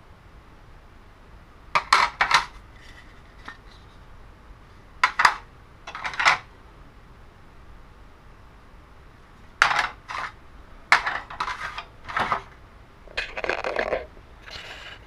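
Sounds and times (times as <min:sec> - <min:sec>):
plastic toy parts clattering: 0:01.8 - 0:03.8, 0:05.0 - 0:06.5, 0:09.6 - 0:15.0.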